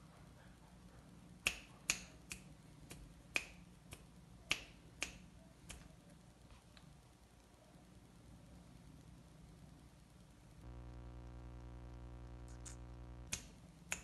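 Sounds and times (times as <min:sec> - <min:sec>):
fingers snapping: 0:01.4 - 0:05.9, 0:12.5 - 0:14.0.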